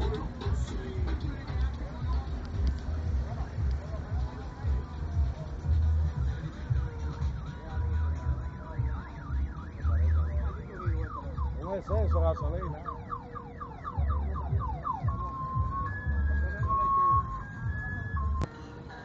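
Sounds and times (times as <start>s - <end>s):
bass music thumping: 0.0s - 18.5s
car alarm siren: 7.8s - 18.5s.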